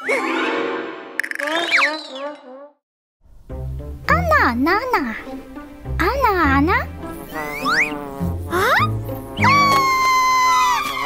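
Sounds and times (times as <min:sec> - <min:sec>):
cartoon fly buzzing: 0:06.8 - 0:11.0.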